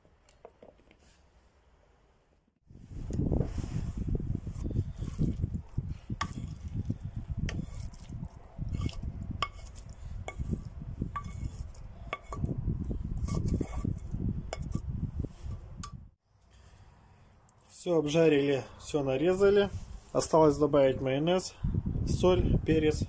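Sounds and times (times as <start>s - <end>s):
wind rumble on microphone: 2.7s - 16.2s, 19.4s - 20.1s, 21.6s - 23.0s
spatula scraping frying pan: 7.5s - 8.1s, 8.7s - 12.5s, 13.1s - 15.6s.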